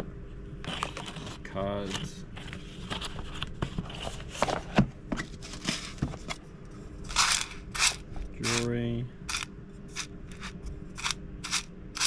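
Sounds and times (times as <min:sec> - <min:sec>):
box lid scraping: 0:07.1 - 0:08.6.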